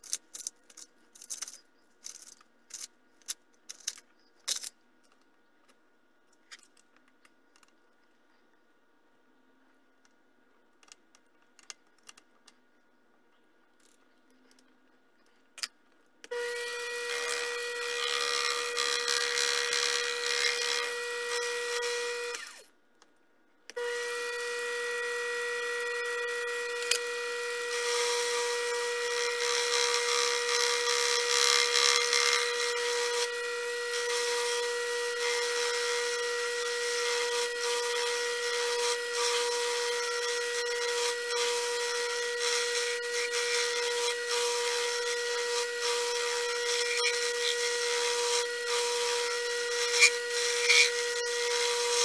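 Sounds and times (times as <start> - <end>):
lathe motor whine: 16.3 - 22.6, 23.7 - 52.0
tool cutting metal shaft: 16.3 - 22.7, 23.7 - 52.0.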